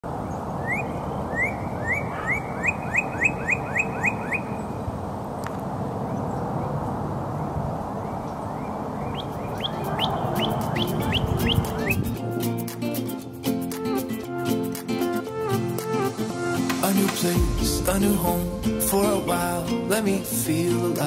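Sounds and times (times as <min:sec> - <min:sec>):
outdoor background noise: 0:00.0 - 0:14.2
bird singing rising whistles: 0:09.0 - 0:12.2.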